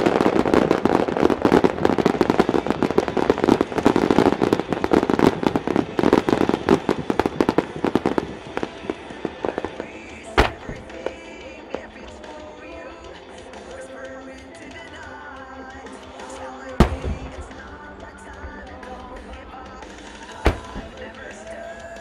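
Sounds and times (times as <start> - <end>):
fireworks crackling: 0.0 - 22.0
loud firework bang: 10.4 - 11.2, 16.8 - 17.7, 20.1 - 21.3.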